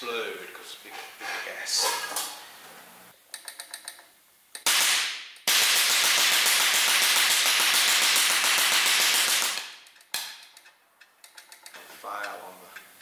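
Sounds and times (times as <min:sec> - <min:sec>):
rapid-fire pops and hiss of jets: 0:04.5 - 0:10.5.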